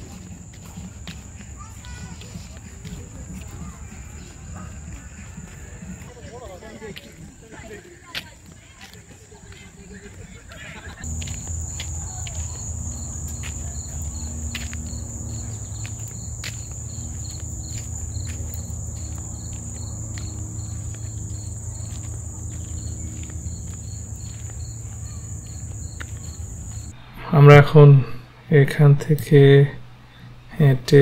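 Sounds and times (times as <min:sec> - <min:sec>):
insect high-pitched trill: 0:11.0 - 0:27.0
insect chirping lower pitch: 0:11.0 - 0:28.4
low rumble: 0:11.0 - 0:30.9.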